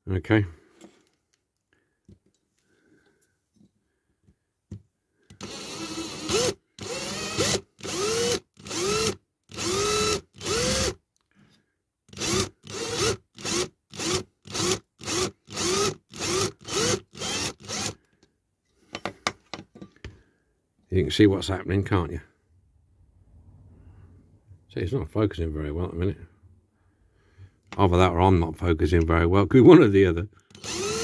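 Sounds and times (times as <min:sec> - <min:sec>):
electric drill pulsing: 0:05.3 - 0:11.0, 0:12.1 - 0:18.0, 0:30.5 - 0:31.0.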